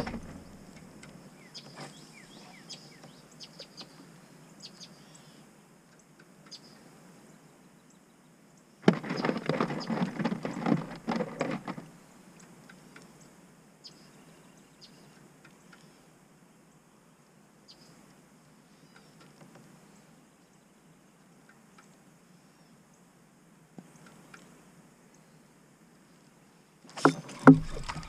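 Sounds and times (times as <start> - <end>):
rapid irregular knocking and rattling: 0.0 - 1.1, 8.9 - 11.9, 27.0 - 28.0
faint bird chirps: 1.3 - 4.0, 13.8 - 16.1, 18.7 - 19.3.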